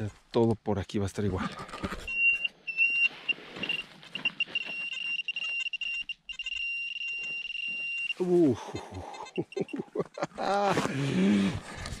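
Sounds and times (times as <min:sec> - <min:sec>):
metal detector beeping tone: 0:02.0 - 0:10.2.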